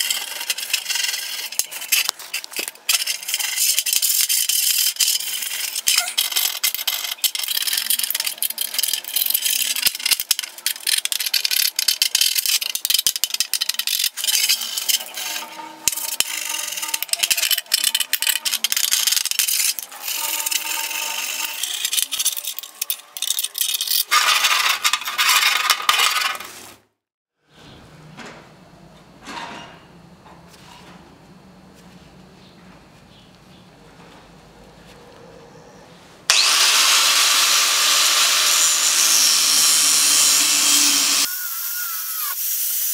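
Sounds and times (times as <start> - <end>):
metal file rasping on steel: 12.8 - 25.3.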